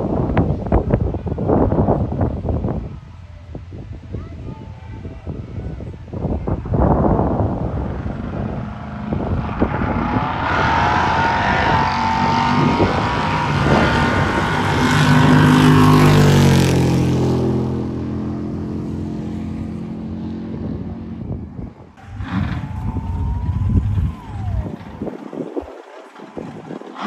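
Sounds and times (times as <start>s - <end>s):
race car engine: 6.1s - 27.0s.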